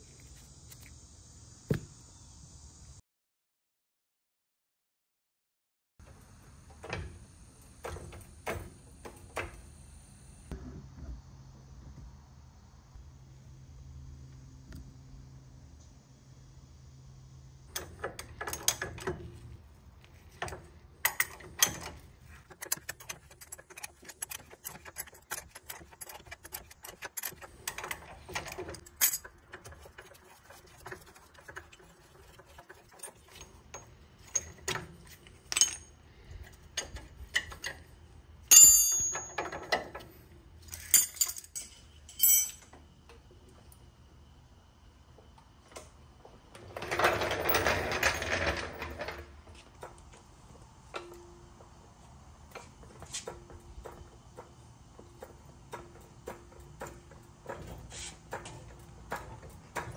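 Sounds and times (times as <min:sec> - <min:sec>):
metal parts clicking and clinking: 0:20.4 - 0:37.9, 0:38.5 - 0:42.8
sharp ringing metal clink: 0:38.5 - 0:39.5.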